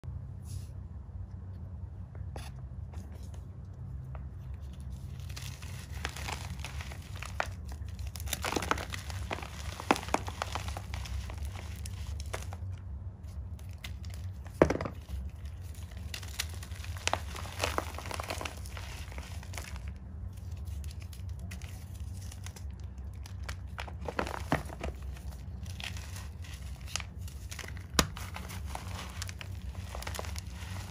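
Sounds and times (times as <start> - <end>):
chalk crunching and crumbling: 4.2 - 30.9.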